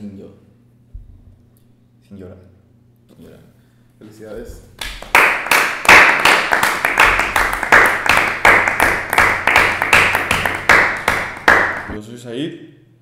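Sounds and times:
people clapping: 4.8 - 12.0.

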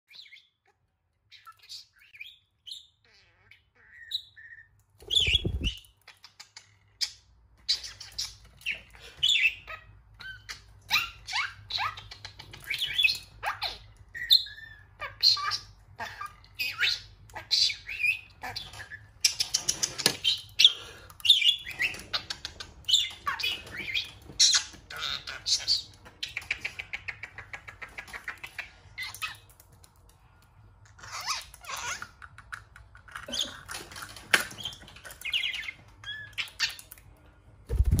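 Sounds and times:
budgerigar chattering and warbling: 1.3 - 5.8
bird wings thumping microphone: 37.7 - 38.0.

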